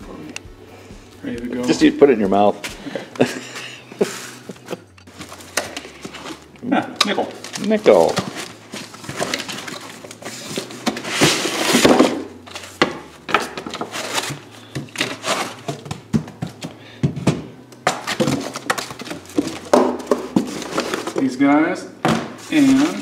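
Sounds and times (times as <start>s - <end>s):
cardboard rustling and scraping: 7.2s - 16.6s, 18.0s - 21.4s, 22.1s - 23.0s.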